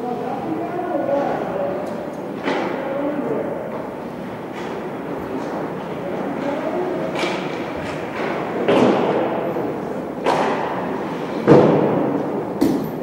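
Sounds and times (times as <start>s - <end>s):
hard thuds echoing in hall: 7.1s - 13.0s.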